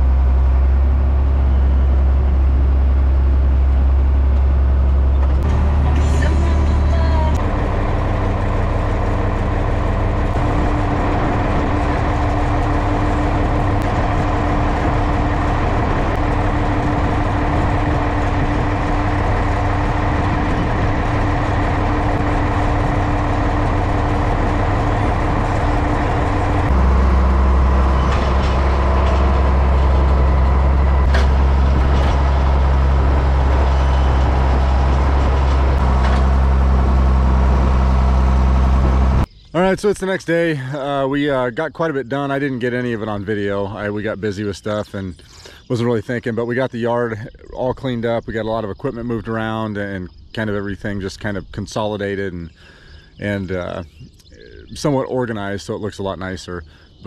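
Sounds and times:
large vehicle engine running: 0:00.0 - 0:57.0.

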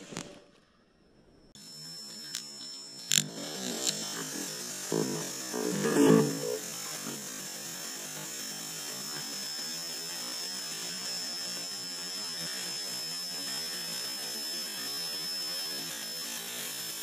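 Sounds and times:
thin high whine: 0:00.0 - 0:15.8
fuse hissing: 0:03.1 - 0:07.2.

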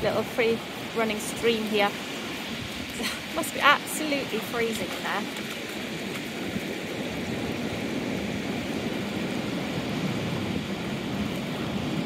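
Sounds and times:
stream running over stones: 0:00.0 - 0:12.0
surf: 0:00.0 - 0:12.0
wind buffeting microphone: 0:00.0 - 0:12.0.

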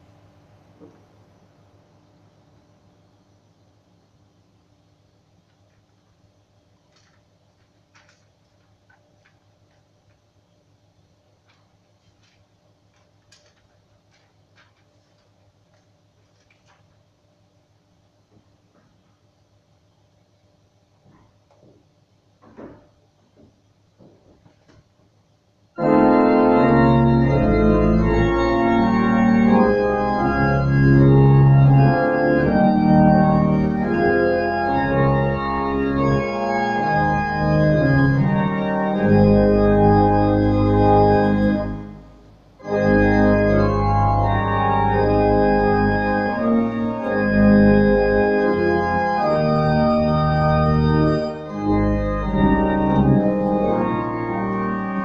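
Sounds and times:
organ playing slow chords: 0:25.8 - 0:55.0.

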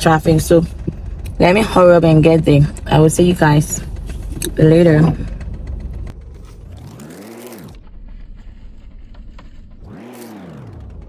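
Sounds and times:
car engine rumble inside cabin: 0:00.0 - 0:11.0
rising and falling swooshes: 0:06.6 - 0:08.1, 0:09.6 - 0:11.0.

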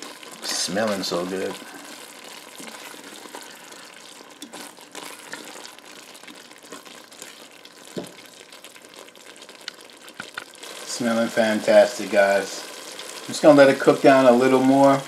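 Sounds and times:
spoon stirring with squelches: 0:00.0 - 0:11.2
sauce sizzling: 0:00.0 - 0:15.0.

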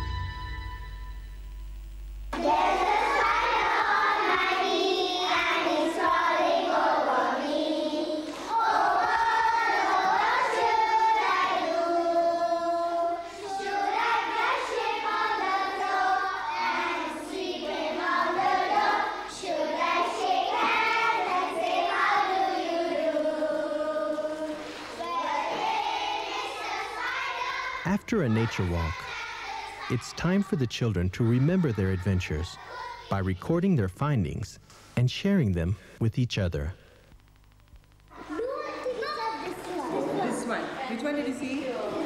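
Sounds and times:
children singing in unison: 0:02.4 - 0:33.1.

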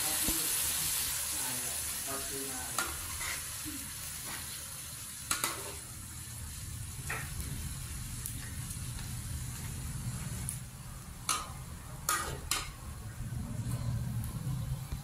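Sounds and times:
stir-fry sizzling in a wok: 0:00.0 - 0:15.0
metal spatula stirring: 0:02.7 - 0:03.5, 0:11.3 - 0:12.8.

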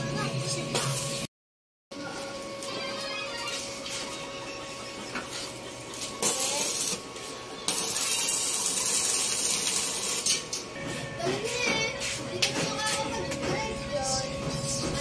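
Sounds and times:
arc welding crackling hiss: 0:05.3 - 0:12.2.

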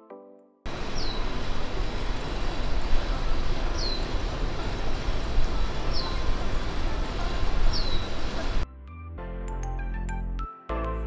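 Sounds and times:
bird chirping: 0:00.7 - 0:08.6
traffic rumble: 0:00.7 - 0:08.6
wind noise on microphone: 0:00.7 - 0:08.6.

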